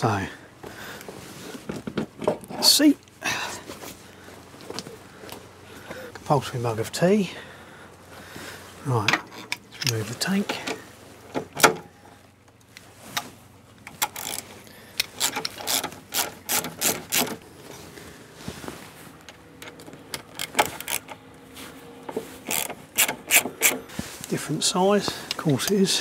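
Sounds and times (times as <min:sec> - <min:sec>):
socket ratchet clicking: 0:15.0 - 0:17.4, 0:19.6 - 0:21.2, 0:22.4 - 0:23.8.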